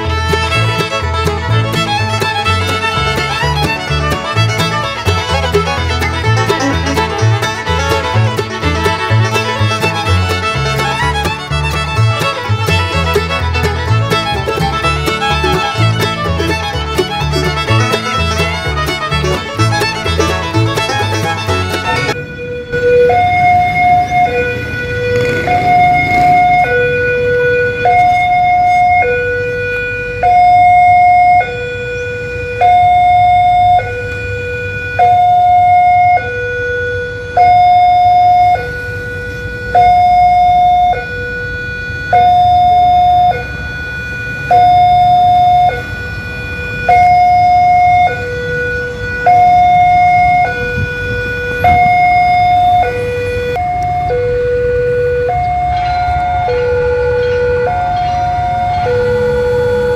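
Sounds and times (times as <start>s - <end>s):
road traffic rumbling: 0.0s - 59.9s
two-tone crossing alarm chime: 21.9s - 34.1s, 35.0s - 38.8s, 39.6s - 50.9s, 51.6s - 53.0s, 53.6s - 59.9s.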